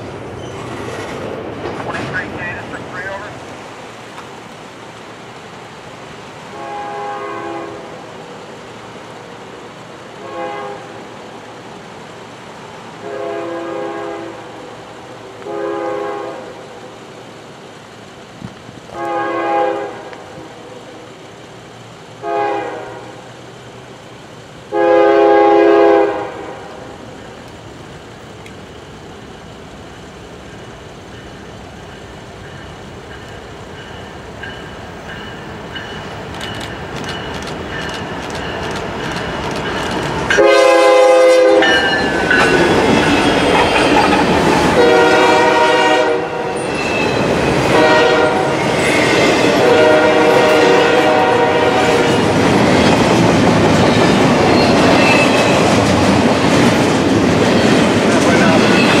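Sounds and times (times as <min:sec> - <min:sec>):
train rumbling: 0:00.0 - 0:59.0
locomotive air horn blasts: 0:06.5 - 0:08.0, 0:10.2 - 0:10.9, 0:13.0 - 0:14.5, 0:15.4 - 0:16.6, 0:18.9 - 0:20.4, 0:22.2 - 0:23.2, 0:24.7 - 0:26.7, 0:40.3 - 0:42.0, 0:44.8 - 0:46.6, 0:47.7 - 0:48.6, 0:49.6 - 0:52.1.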